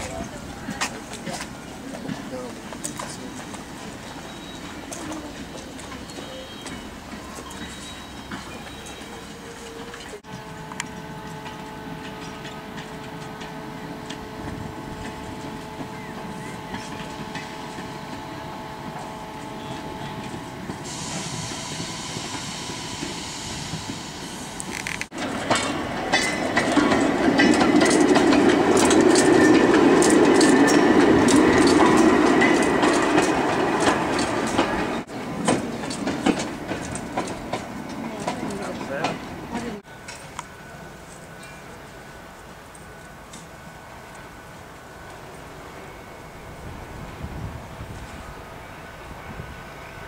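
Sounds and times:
steam locomotive hiss: 0:00.0 - 0:27.4
wheels clattering on rails: 0:00.0 - 0:43.5
steam locomotive rumble: 0:00.0 - 0:50.0.

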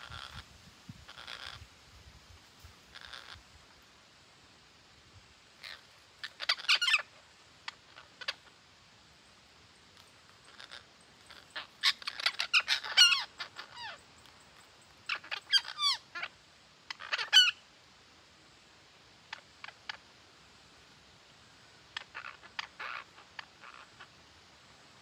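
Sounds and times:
parakeets squawking: 0:00.0 - 0:00.4, 0:01.1 - 0:01.6, 0:02.9 - 0:03.4, 0:05.6 - 0:08.5, 0:10.0 - 0:14.0, 0:15.0 - 0:16.3, 0:16.9 - 0:17.6, 0:22.0 - 0:24.1.

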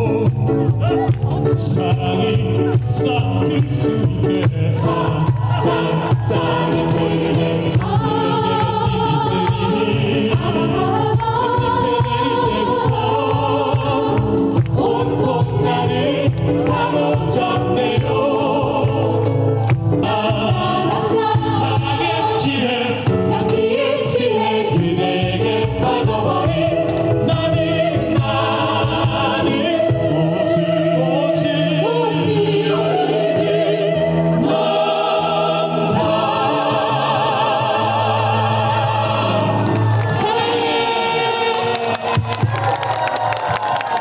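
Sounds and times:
choir singing held notes: 0:00.0 - 0:42.4.

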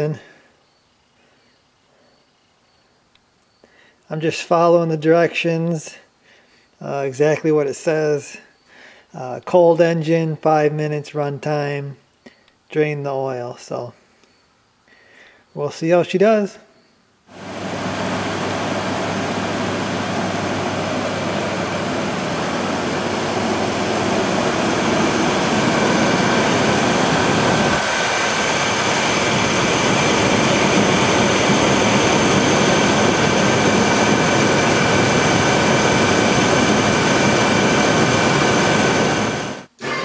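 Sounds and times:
faint high whine: 0:16.7 - 0:40.0
pickup engine idling: 0:17.4 - 0:38.0.

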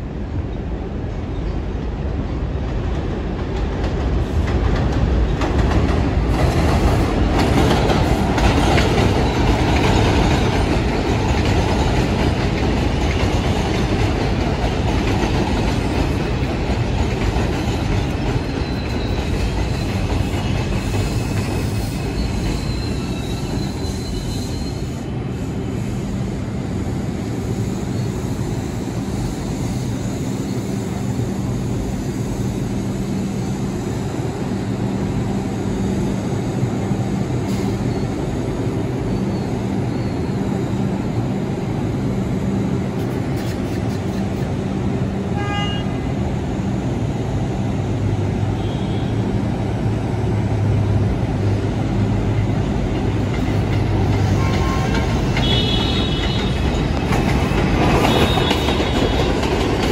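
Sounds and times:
subway train wheels clattering: 0:00.0 - 0:59.9
high wheel squeal: 0:18.4 - 0:26.1, 0:39.1 - 0:40.6.

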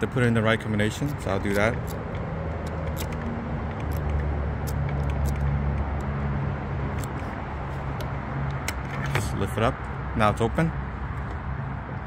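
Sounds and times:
low engine-like hum: 0:00.0 - 0:12.0
lock thumbwheel clicks: 0:01.0 - 0:06.1.

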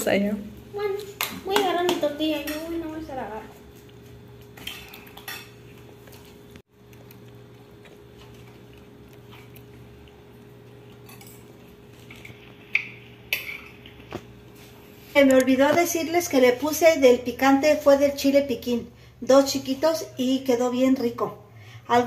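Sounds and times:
steady low hum: 0:00.0 - 0:22.0
tableware clinking: 0:04.6 - 0:05.7, 0:11.0 - 0:14.0.

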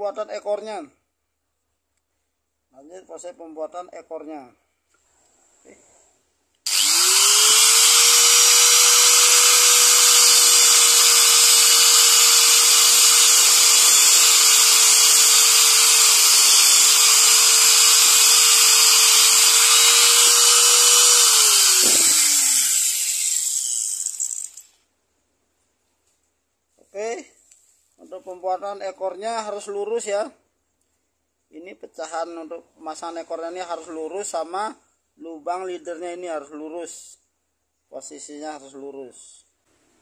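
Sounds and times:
angle grinder whining: 0:06.7 - 0:24.7.

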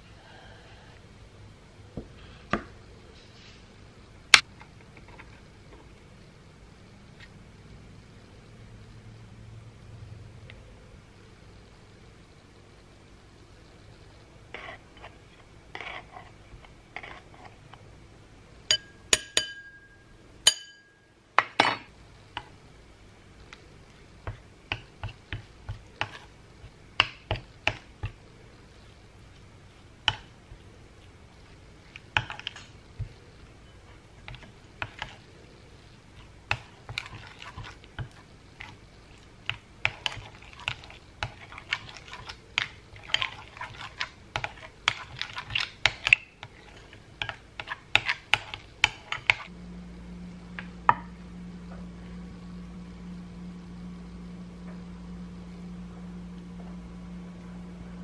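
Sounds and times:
spoon clinking on bowl: 0:18.7 - 0:21.8.

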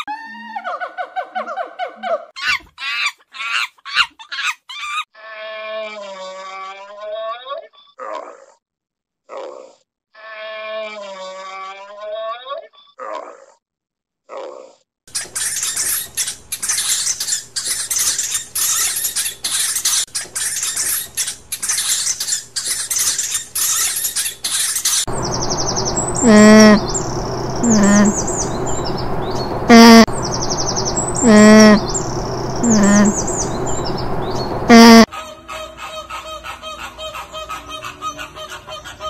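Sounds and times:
alpacas calling: 0:25.1 - 0:35.1
faint high twittering: 0:25.1 - 0:35.1.

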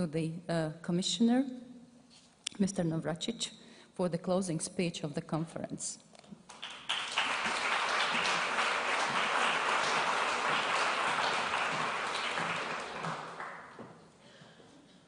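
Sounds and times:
audience applauding: 0:06.5 - 0:14.0.

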